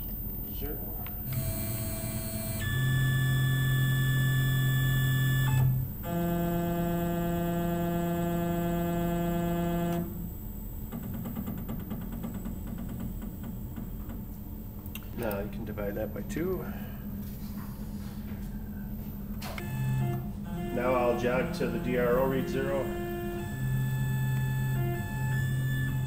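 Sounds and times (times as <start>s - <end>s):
stepper motor whining: 1.2s - 10.4s, 19.5s - 26.0s.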